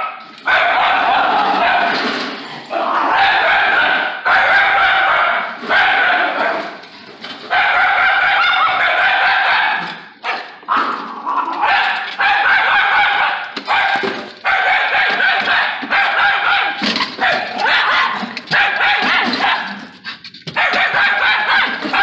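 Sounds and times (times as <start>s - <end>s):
dog barking rapidly: 0.0s - 2.0s, 2.9s - 6.7s, 7.5s - 11.0s, 11.6s - 22.0s.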